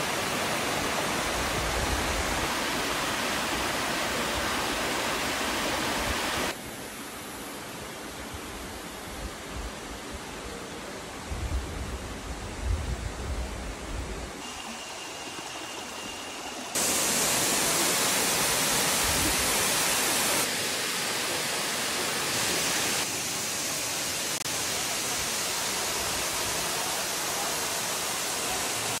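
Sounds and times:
waterfall pouring into a pool: 14.4 - 29.0.

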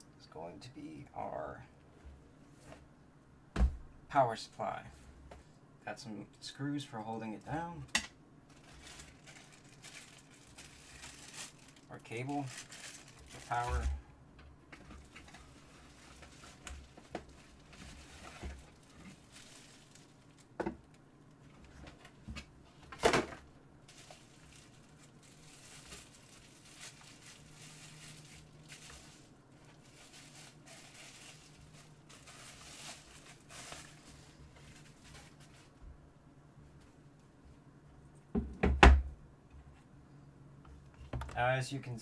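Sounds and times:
faint steady hum: 0.0 - 42.0
cardboard and foam rustling: 8.5 - 14.0, 14.8 - 20.5, 21.5 - 35.8.

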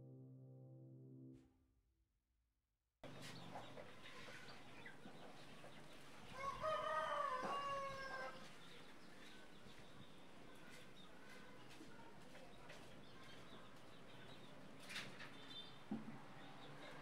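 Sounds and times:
rooster crowing: 6.4 - 8.4.

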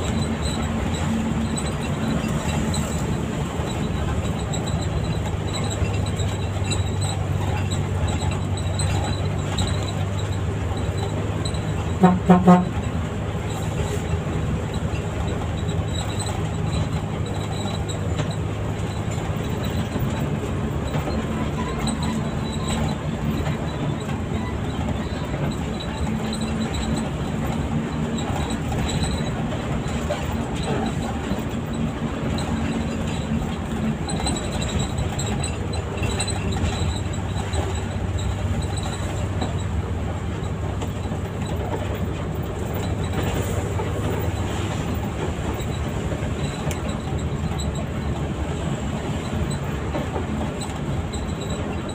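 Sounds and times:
bus engine drone: 0.0 - 51.9
road rumble: 0.0 - 51.9.

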